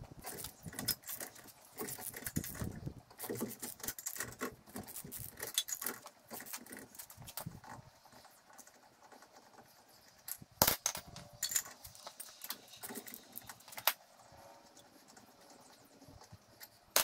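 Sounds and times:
hand tools clinking: 0.2s - 7.3s, 10.2s - 14.0s.

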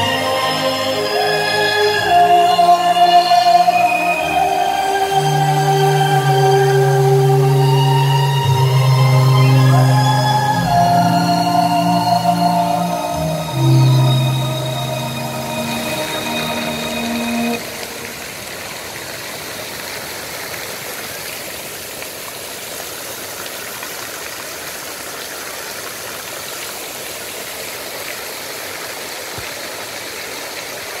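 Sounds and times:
music: 0.0s - 18.2s
fountain water splashing: 0.0s - 31.0s.

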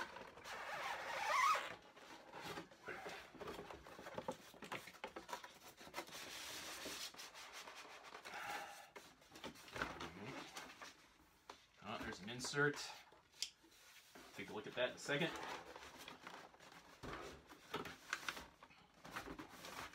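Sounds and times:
small knocks and rustles: 2.0s - 7.2s, 13.5s - 19.9s.

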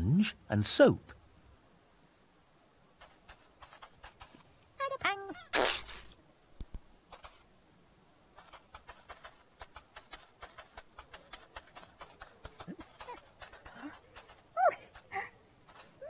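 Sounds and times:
toy trolley rapid clicking: 3.0s - 4.4s, 8.4s - 16.0s.

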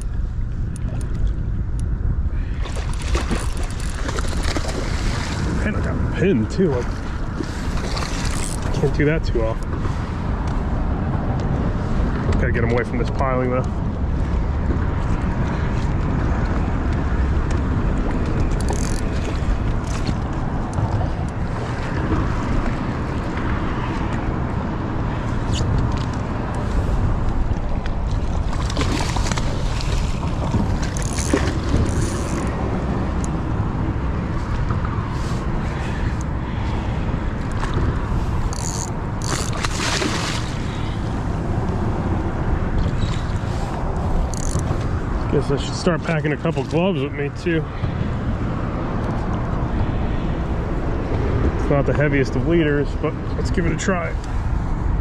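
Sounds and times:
water lapping at kayak: 0.0s - 51.8s
wind buffeting microphone: 0.0s - 55.0s
fish splashing at surface: 39.4s - 40.8s.

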